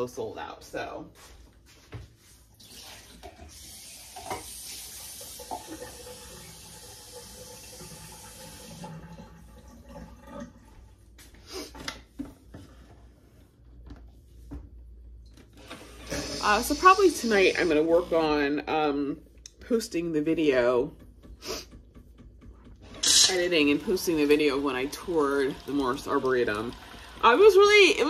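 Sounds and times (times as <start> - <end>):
tap water running: 2.5 - 11.4, 15.1 - 28.0.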